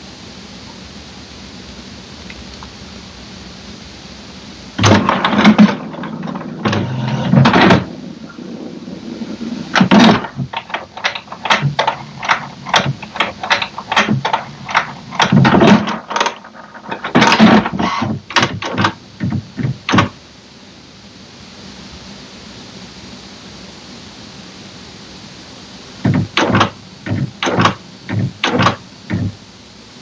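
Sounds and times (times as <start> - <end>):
printer mechanism clicks and clunks: 4.8 - 7.9, 9.7 - 20.2, 26.0 - 29.3
printer motor whirring: 4.8 - 8.5, 9.4 - 20.2, 26.0 - 29.4.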